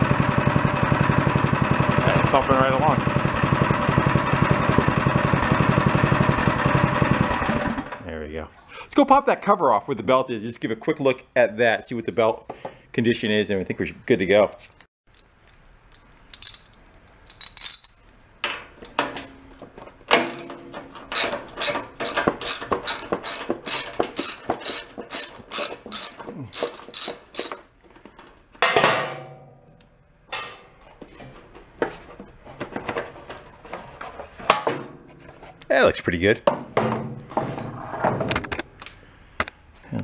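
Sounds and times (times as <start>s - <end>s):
ratchet wrench clicking: 15.9s - 18.0s, 21.1s - 27.7s
metal clanks: 16.3s - 27.7s, 28.6s - 31.5s.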